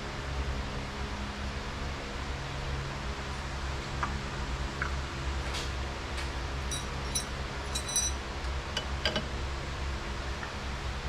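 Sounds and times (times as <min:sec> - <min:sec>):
shop fan humming: 0:00.0 - 0:11.0
metal parts clinking: 0:06.7 - 0:08.2.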